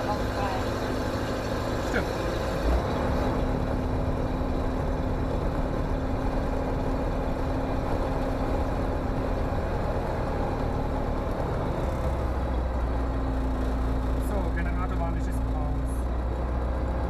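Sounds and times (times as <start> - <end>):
aircraft engine idling: 0.0 - 2.6.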